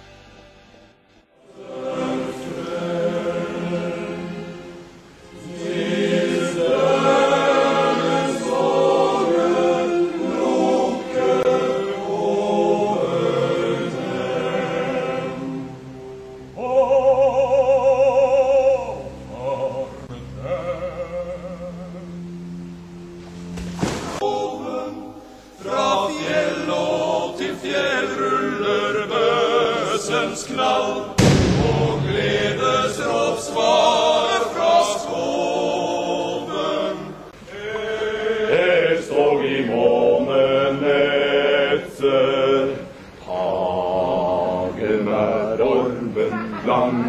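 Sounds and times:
men's choir singing: 1.3s - 22.4s, 23.9s - 47.0s
sharp hit: 31.2s - 33.8s.

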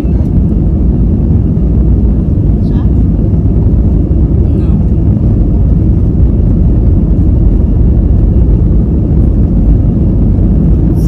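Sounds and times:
airliner cabin engine rumble: 0.0s - 11.0s.

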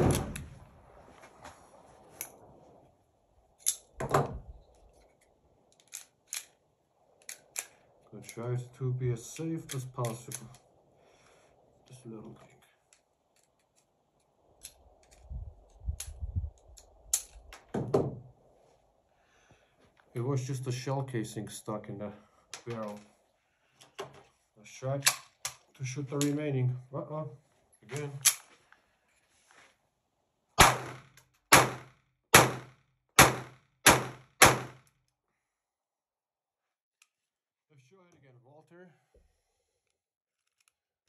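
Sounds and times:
pistol handling clicks and knocks: 3.6s - 6.6s, 7.2s - 8.4s, 9.6s - 10.7s, 12.9s - 18.0s, 25.0s - 26.4s, 27.9s - 28.5s
pistol gunshots: 30.6s - 34.8s.

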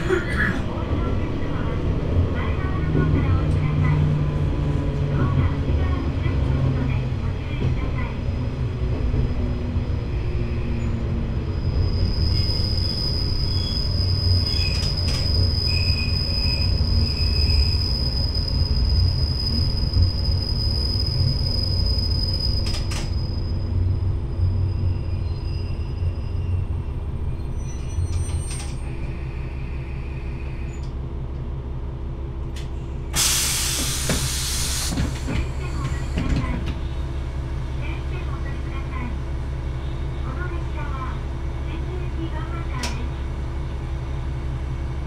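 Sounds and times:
diesel engine low rumble: 0.0s - 11.8s, 22.3s - 45.0s
high wheel squeal: 10.4s - 30.8s.

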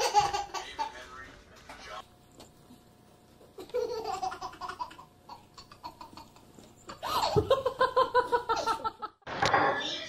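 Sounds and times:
baby laughing: 0.0s - 1.1s, 3.5s - 7.7s.

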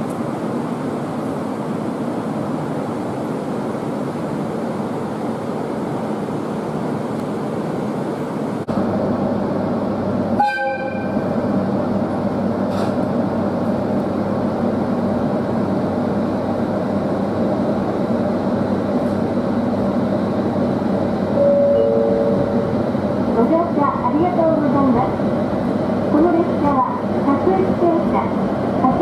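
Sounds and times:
train running noise: 0.0s - 29.0s
train horn blast: 10.4s - 11.2s.

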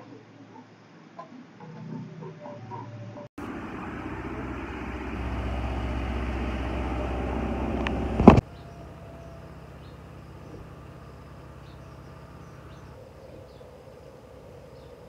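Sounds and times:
low machine hum: 3.4s - 15.0s.

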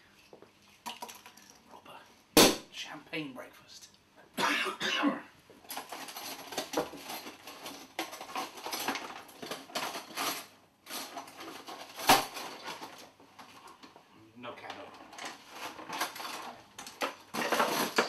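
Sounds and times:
sharp knock: 2.4s - 2.7s
utensils and crockery clattering: 5.6s - 13.1s, 14.7s - 18.0s.

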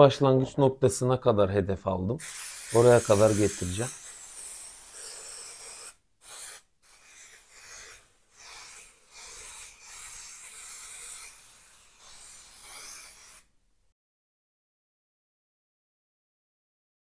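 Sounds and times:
aerosol can spraying: 2.2s - 13.5s.

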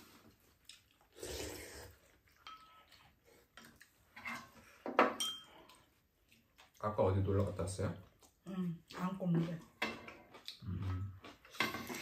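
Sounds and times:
chewing: 0.1s - 4.6s, 5.5s - 12.0s
slurping: 0.7s - 2.3s.

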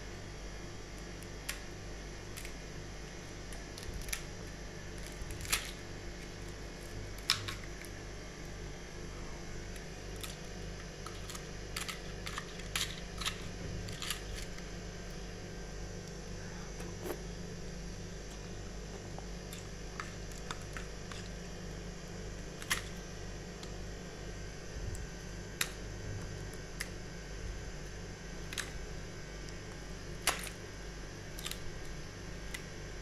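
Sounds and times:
ice cubes clicking and cracking in tray: 3.5s - 8.0s, 9.6s - 14.7s, 22.4s - 23.0s, 28.4s - 28.8s, 29.5s - 30.6s, 31.3s - 32.7s.

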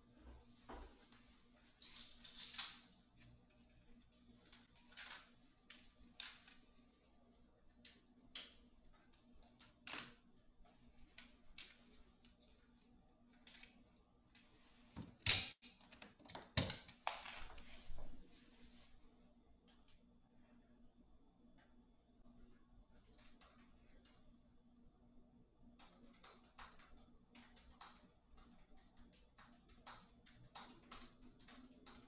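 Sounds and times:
faint clicks and taps: 25.8s - 32.0s.

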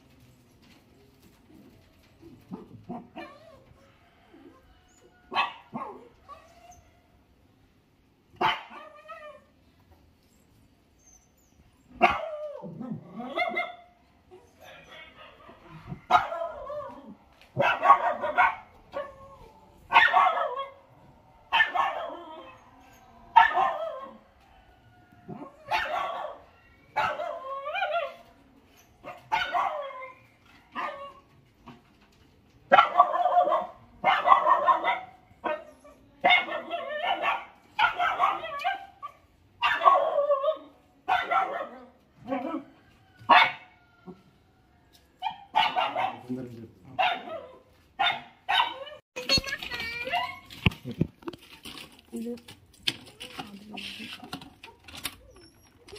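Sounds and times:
dog barking: 5.3s - 6.1s, 8.4s - 9.0s, 12.0s - 12.4s, 13.3s - 13.9s, 14.7s - 17.0s, 17.6s - 19.1s, 19.9s - 20.8s, 21.5s - 22.5s, 23.3s - 24.2s, 25.3s - 28.2s, 29.0s - 30.0s, 30.8s - 31.1s, 32.7s - 43.7s, 45.2s - 49.0s.

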